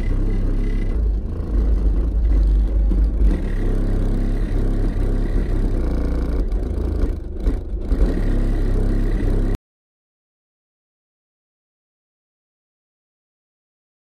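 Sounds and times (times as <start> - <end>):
deep loud subwoofer bass: 0.0 - 9.6.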